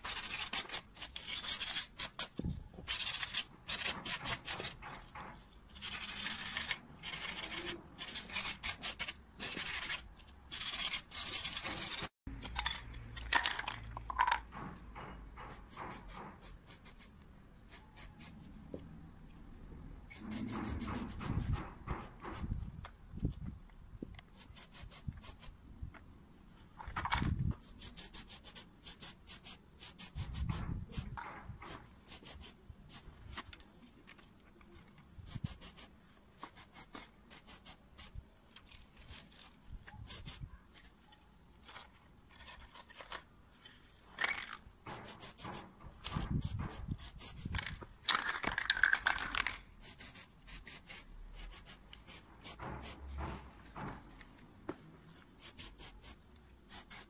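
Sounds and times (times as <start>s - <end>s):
rubbing and scraping handling noises: 0.0s - 18.8s, 20.0s - 25.6s, 26.4s - 57.0s
spray can hissing: 27.7s - 31.1s, 35.2s - 38.1s, 44.9s - 45.7s, 49.8s - 53.0s, 55.4s - 57.0s.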